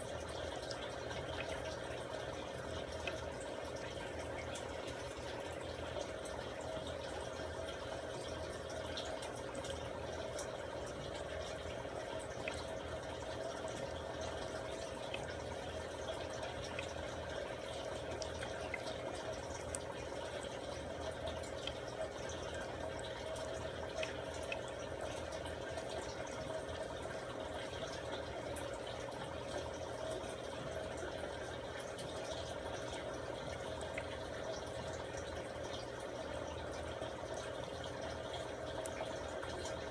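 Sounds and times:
aquarium equipment hum: 0.0s - 39.9s.

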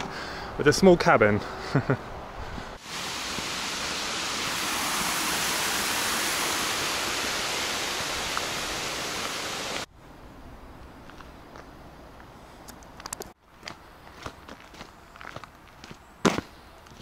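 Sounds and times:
fast-flowing water rushing: 2.8s - 9.9s.

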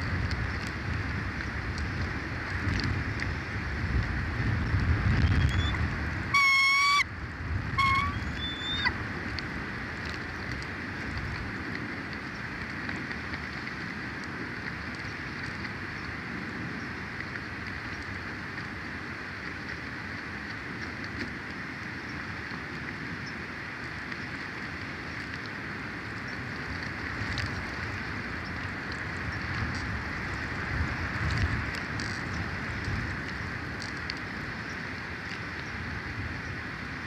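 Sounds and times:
bird calling: 5.2s - 7.1s, 7.8s - 9.0s.

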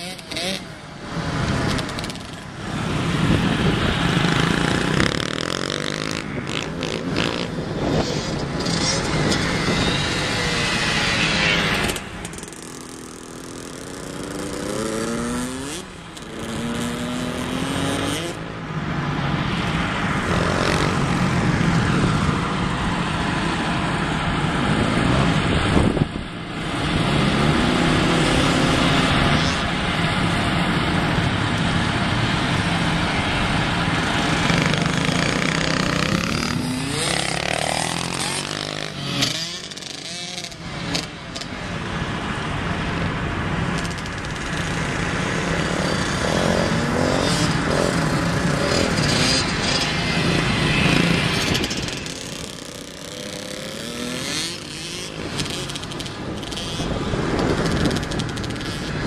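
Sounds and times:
dirt bike engine revving: 0.0s - 0.7s, 1.3s - 18.4s, 34.1s - 41.1s, 45.6s - 58.9s.

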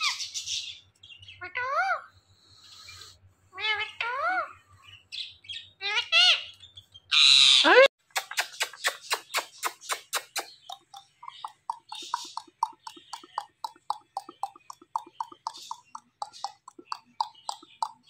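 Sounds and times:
parakeet harsh screech: 7.1s - 7.8s
quick smacking kiss clicks: 8.1s - 10.6s.

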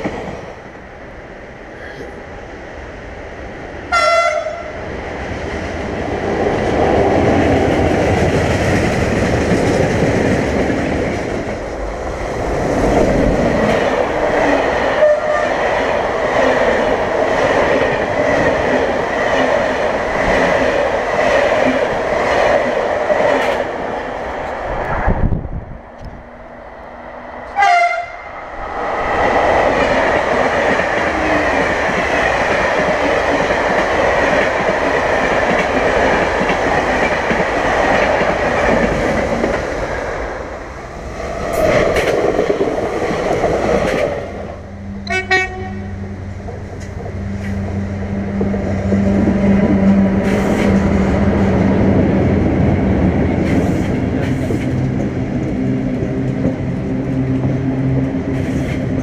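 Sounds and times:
diesel locomotive drone: 0.0s - 59.0s
train wheel and rail noise: 0.0s - 59.0s
train horn toots: 3.9s - 4.8s, 15.0s - 15.6s, 27.5s - 28.3s, 44.9s - 46.3s.

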